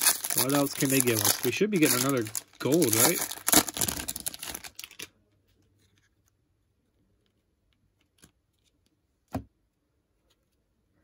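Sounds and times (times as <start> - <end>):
foil wrapper crinkling: 0.0 - 5.1
cards being handled: 0.0 - 6.3.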